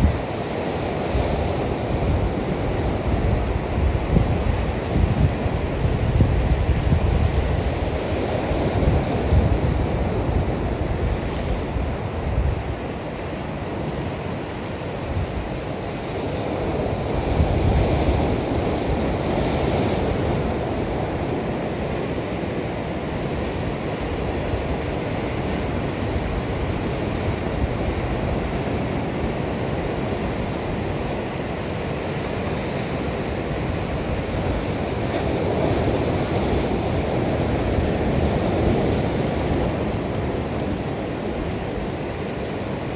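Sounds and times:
wind on microphone: 0.0 - 13.0, 23.1 - 42.9.

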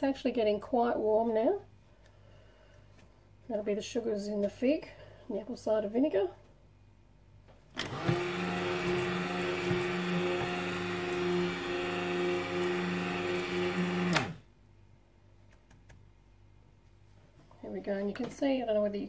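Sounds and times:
stick blender motor hum: 7.7 - 14.4.

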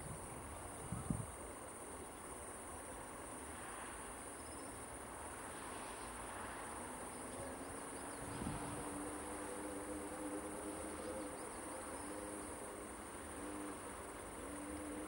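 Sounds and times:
crickets chirping: 0.0 - 15.0
electric locomotive hum: 7.2 - 15.0.

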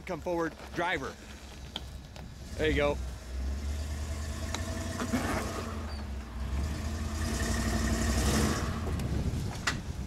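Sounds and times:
truck engine at low revs: 1.5 - 10.0.

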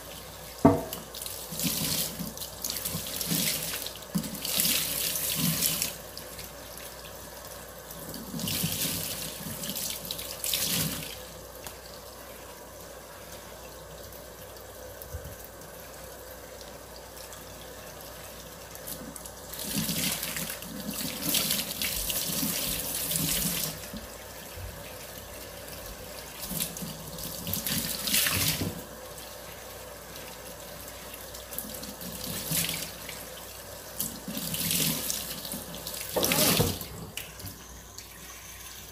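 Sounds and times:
tap water splashing into sink: 0.6 - 6.0, 25.8 - 29.0, 34.0 - 37.6.

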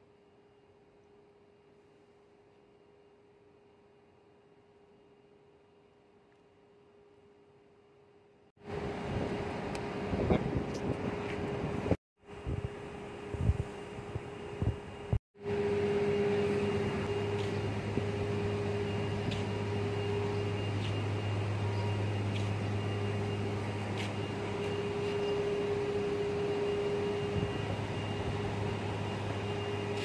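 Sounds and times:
machinery humming: 8.6 - 30.0.

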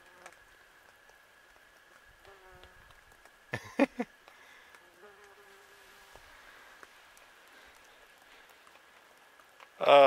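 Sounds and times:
insects buzzing: 0.0 - 10.0.

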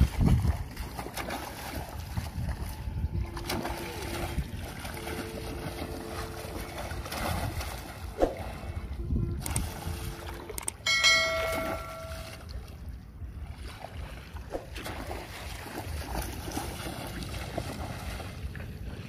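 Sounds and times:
wind noise on microphone: 0.0 - 15.1
water sloshing and splashing: 0.0 - 19.0
chime sound effect: 10.9 - 12.4.

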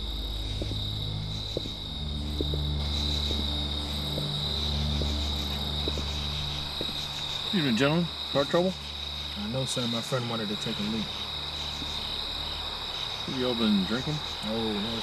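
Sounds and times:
low even hum: 0.0 - 9.4
crickets chirring: 0.0 - 15.0
footsteps on asphalt: 0.4 - 7.6, 11.8 - 12.0.

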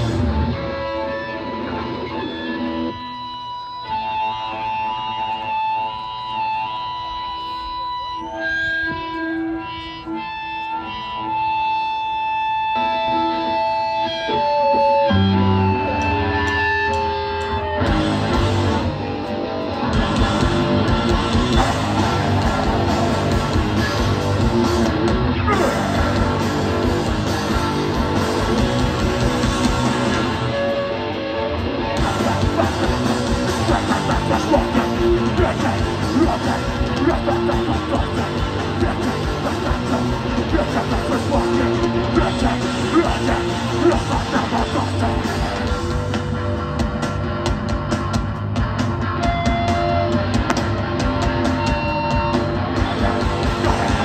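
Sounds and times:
ringing guitar notes: 0.0 - 47.5
punk band playing: 0.0 - 54.0.

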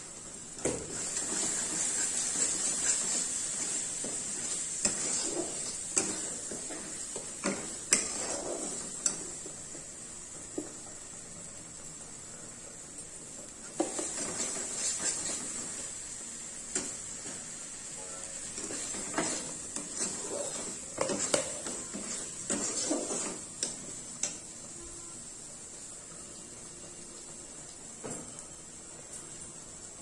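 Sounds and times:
steady high hiss: 0.0 - 30.0
metal spatula scraping a pan: 0.9 - 9.4, 13.8 - 15.6, 18.5 - 23.8.

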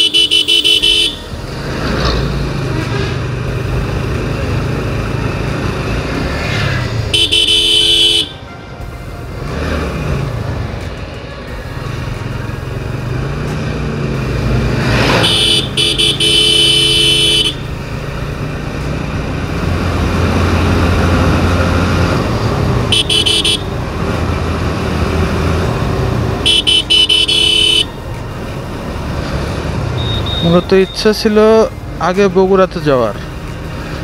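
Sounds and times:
vehicle horn: 0.0 - 1.4, 7.1 - 9.8, 15.0 - 17.7, 22.9 - 23.8, 26.4 - 28.0, 30.0 - 31.0
wind and road noise: 0.0 - 34.0.

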